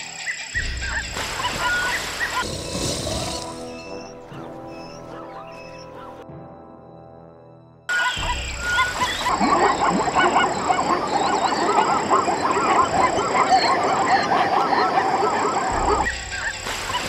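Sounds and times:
animals honking calls: 7.9s - 17.0s.

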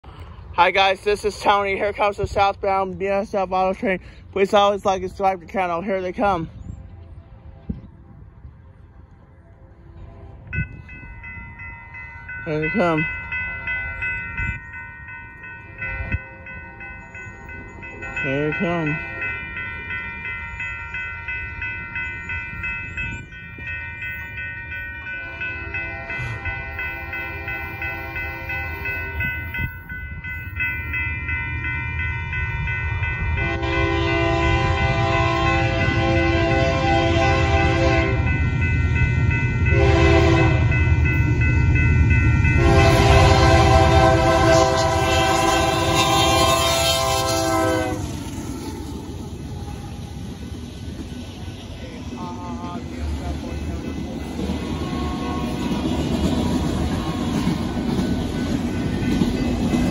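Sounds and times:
train engine and wheels rumbling: 0.0s - 59.9s
crossing bell ringing rapidly: 10.4s - 59.9s
locomotive air horn blasts: 25.2s - 29.2s, 32.9s - 38.3s, 39.7s - 40.8s, 42.6s - 48.1s, 52.2s - 52.8s, 54.7s - 55.8s.

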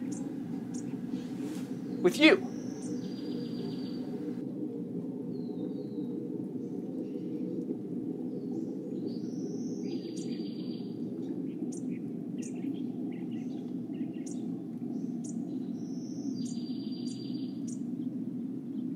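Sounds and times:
buzzy bird trill: 0.0s - 4.3s
small birds chirping: 0.0s - 4.4s, 8.4s - 17.9s
steady low rumble: 0.0s - 15.9s.

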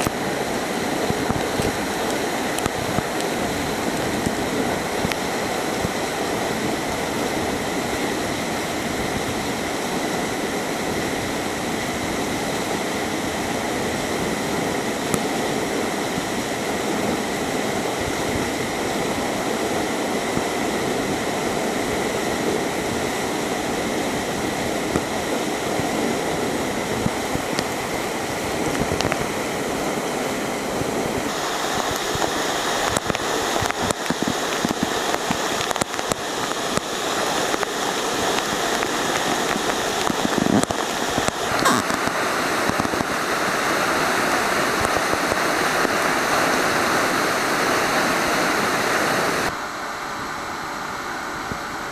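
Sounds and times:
waterfall rushing onto rock: 0.0s - 49.6s
spray crackling on microphone: 31.2s - 44.0s.

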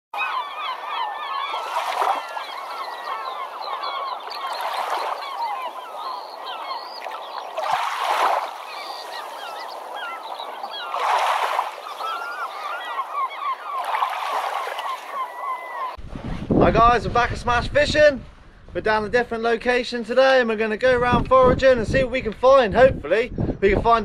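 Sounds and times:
flock of birds honking and chirping: 0.2s - 16.0s.

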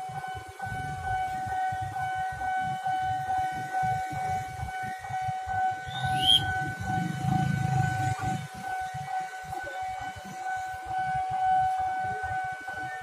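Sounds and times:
level crossing alarm tone: 0.0s - 13.0s
high chirp: 5.9s - 6.6s.

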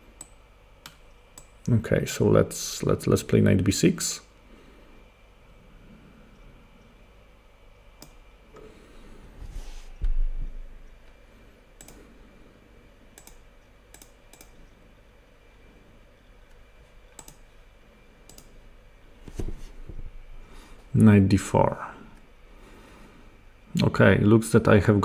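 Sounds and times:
computer mouse clicks: 0.2s - 1.7s, 8.0s - 8.7s, 11.8s - 12.0s, 13.1s - 14.8s, 16.5s - 17.5s, 18.3s - 18.6s.

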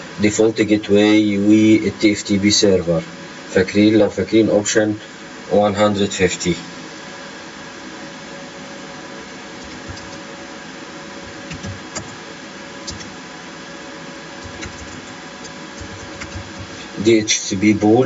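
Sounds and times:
steady background hiss: 0.0s - 18.0s
keyboard keystrokes: 9.6s - 10.2s, 11.5s - 12.2s, 12.9s - 13.1s, 14.4s - 16.7s.

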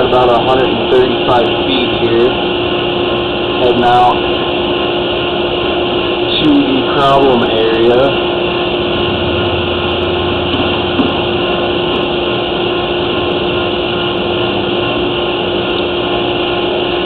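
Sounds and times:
mechanical hum and hiss: 0.0s - 17.0s
low rumble: 8.3s - 15.0s.

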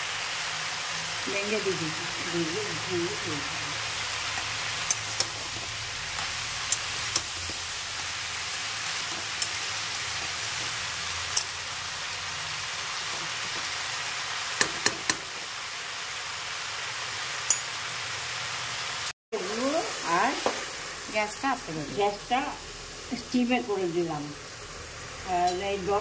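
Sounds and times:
vegetables sizzling in a pan: 0.0s - 26.0s
metal spatula clicking on pan: 4.8s - 5.4s, 6.7s - 7.3s, 11.3s - 11.6s, 17.5s - 17.7s.

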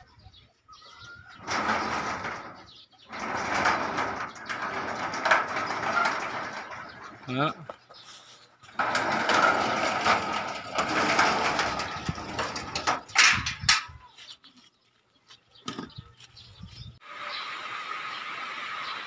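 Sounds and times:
metal gate rolling on track: 1.3s - 7.8s, 8.6s - 13.9s
metal clanks: 1.3s - 8.0s, 8.6s - 14.0s.

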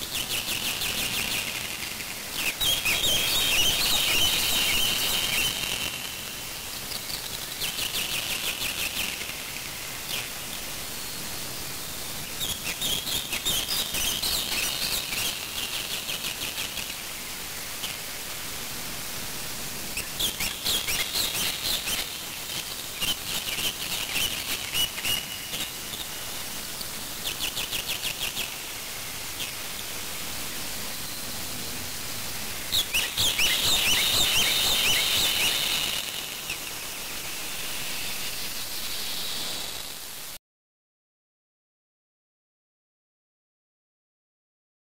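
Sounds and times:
steady hiss: 0.0s - 40.4s
high-pitched chattering bird calls: 0.1s - 5.8s, 12.4s - 17.0s, 20.0s - 26.1s, 32.7s - 37.0s.

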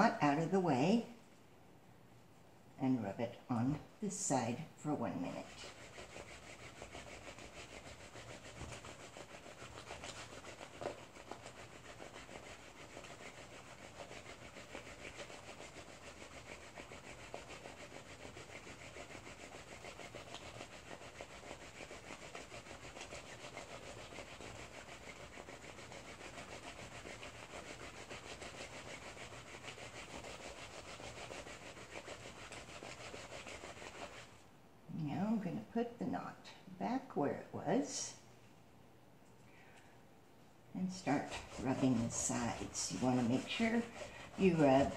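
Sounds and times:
wet rubbing of soap: 3.0s - 34.5s, 40.8s - 44.9s.

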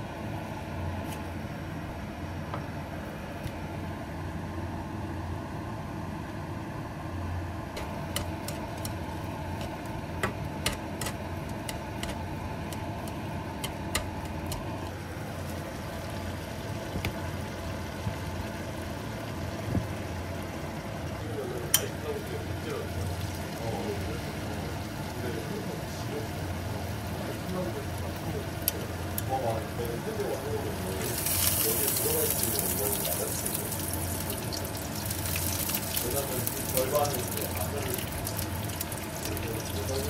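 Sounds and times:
low hum of kitchen machinery: 0.0s - 40.0s
chopsticks clicking against a pan: 8.1s - 9.0s, 10.6s - 14.7s.

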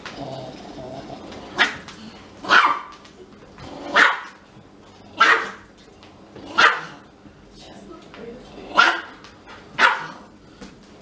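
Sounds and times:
small dog barking: 2.4s - 3.0s, 3.9s - 4.4s, 5.2s - 5.6s, 6.5s - 7.0s, 8.7s - 9.2s, 9.8s - 10.3s.

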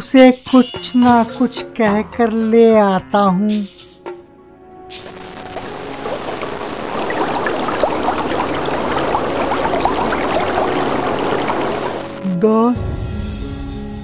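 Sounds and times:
stream water rushing: 4.9s - 12.2s.

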